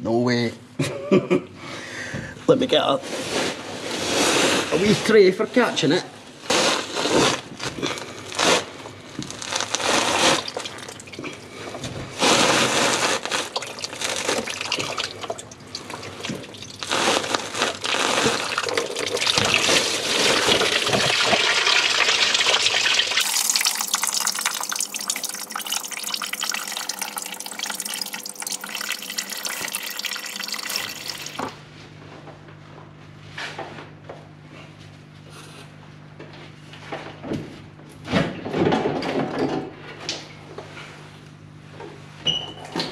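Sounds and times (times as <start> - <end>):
liquid gushing and splashing: 9.3 - 31.6.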